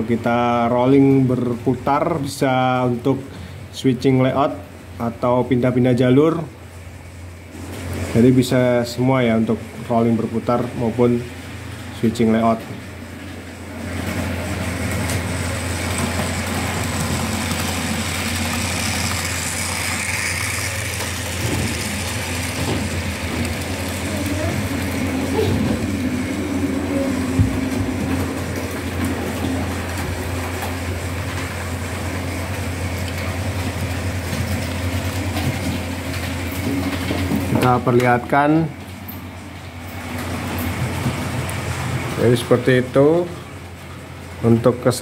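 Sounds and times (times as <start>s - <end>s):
electric motor hum: 6.6s - 44.4s
wheels rumbling on rails: 11.0s - 37.8s.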